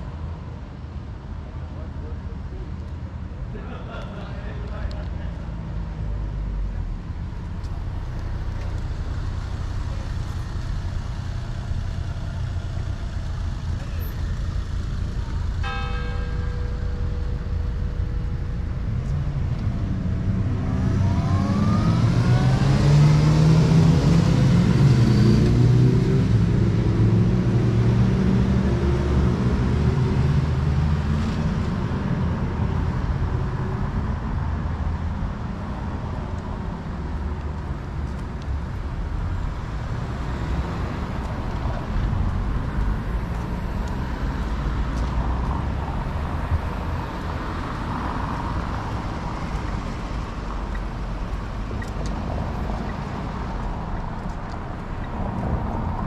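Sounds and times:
low rumble of road noise: 0.0s - 56.0s
car accelerating past: 19.9s - 31.1s.

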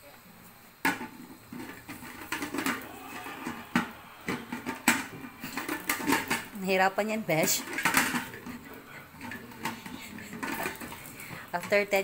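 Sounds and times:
lid knocking and scraping: 0.9s - 2.8s, 3.4s - 6.6s, 9.2s - 11.8s.

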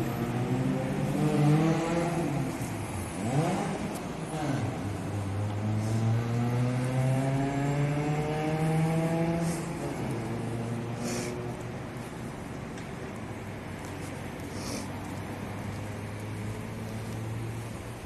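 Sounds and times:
car engines accelerating past: 0.0s - 11.7s.

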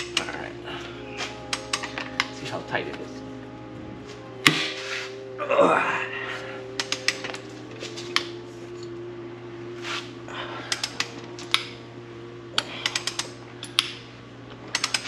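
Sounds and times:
ratchet clicking: 12.6s - 14.0s, 14.7s - 15.0s.

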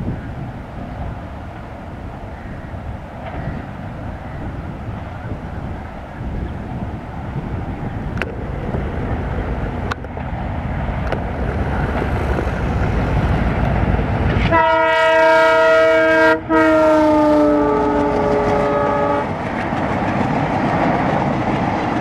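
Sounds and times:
diesel locomotive engine: 0.0s - 22.0s
train horn blast: 14.4s - 19.4s.

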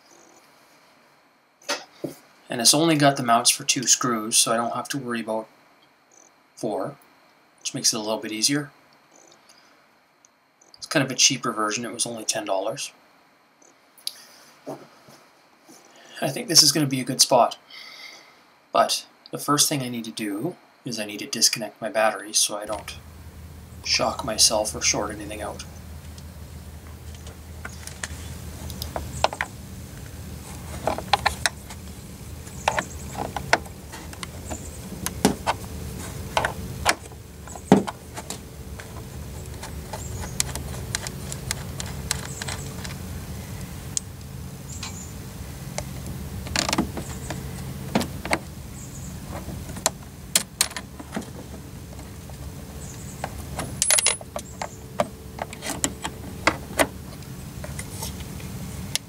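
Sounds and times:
metallic clicks and clinks: 53.7s - 54.8s.

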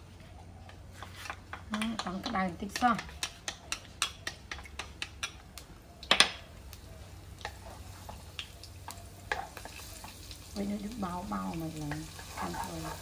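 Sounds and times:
garlic sizzling in oil: 6.7s - 13.0s.

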